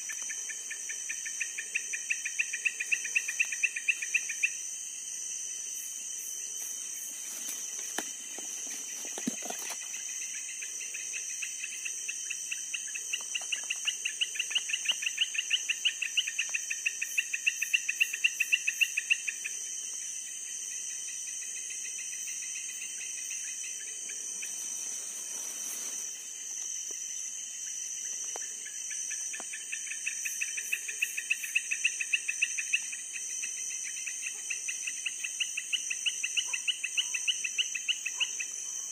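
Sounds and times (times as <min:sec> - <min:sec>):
insects chirping in pulses: 0:00.0 - 0:38.9
insects droning: 0:00.0 - 0:38.9
handling rustles and clicks: 0:07.4 - 0:09.9.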